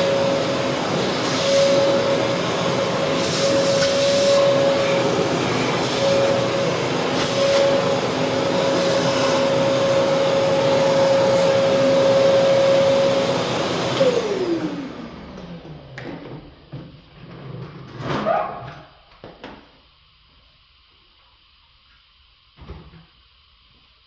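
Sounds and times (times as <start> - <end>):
vacuum motor spinning down: 0.0 - 16.3
vacuum cleaner running: 0.0 - 18.0.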